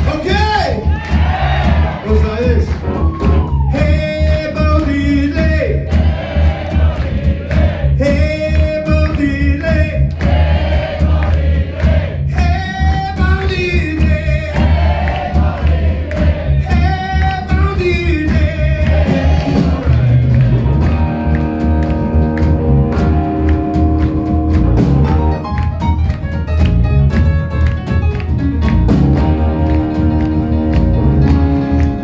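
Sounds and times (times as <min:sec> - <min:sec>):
live rock band playing: 0:00.0 - 0:11.2, 0:11.8 - 0:32.0
audience singing along: 0:01.1 - 0:02.0, 0:05.9 - 0:08.0, 0:10.2 - 0:12.3, 0:14.5 - 0:16.8, 0:18.8 - 0:20.8.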